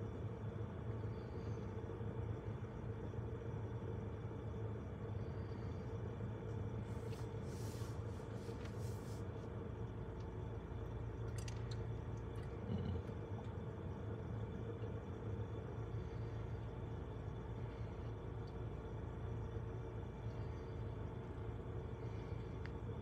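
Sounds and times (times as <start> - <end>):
truck engine idling: 0.0 - 23.0.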